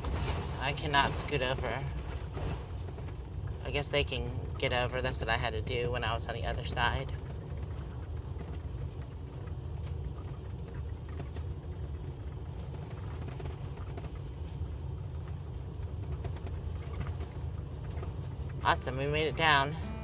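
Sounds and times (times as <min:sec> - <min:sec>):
engine and road rumble: 0:00.0 - 0:20.0
faint ticks and rattles: 0:01.2 - 0:19.0.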